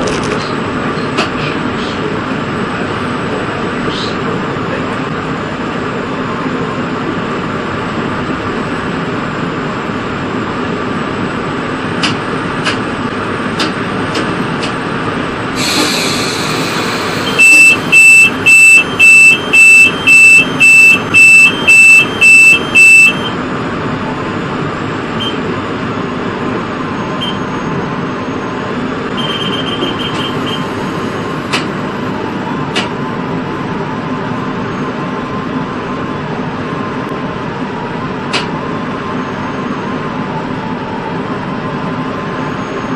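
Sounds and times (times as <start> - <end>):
train running on track: 0.0 - 42.9
brief hiss: 15.6 - 17.2
loud electronic beeps: 15.6 - 23.4, 26.9 - 31.0.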